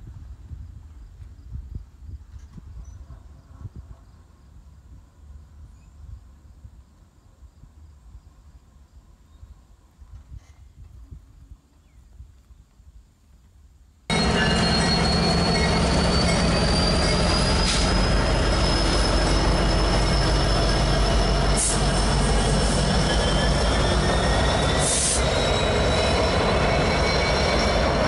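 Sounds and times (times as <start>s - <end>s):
low rumble of train: 0.0s - 28.0s
train wheels squealing: 14.1s - 28.0s.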